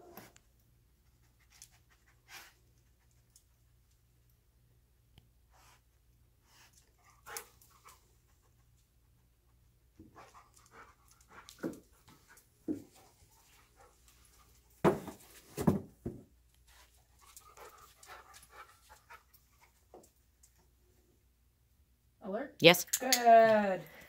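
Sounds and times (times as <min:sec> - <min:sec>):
dog panting: 0:06.4 - 0:14.7, 0:16.7 - 0:20.2.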